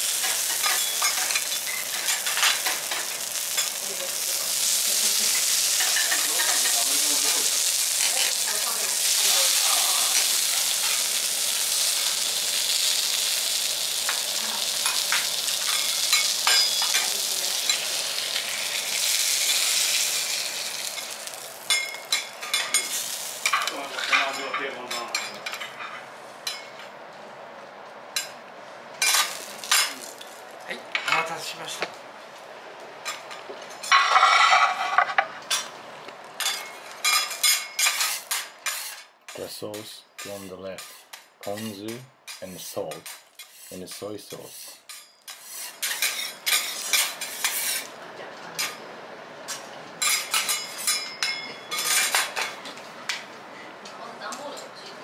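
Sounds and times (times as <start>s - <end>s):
meat sizzling on a griddle: 0.0s - 24.8s, 29.0s - 30.5s, 36.4s - 39.0s, 39.8s - 48.0s
spatula scraping griddle: 4.9s - 11.1s, 33.8s - 35.6s, 36.4s - 39.1s, 42.7s - 47.9s.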